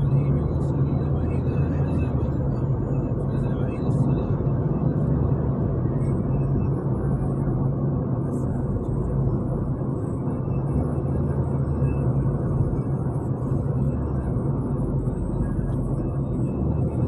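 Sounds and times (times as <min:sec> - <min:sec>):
car driving at highway speed: 0:00.0 - 0:17.0.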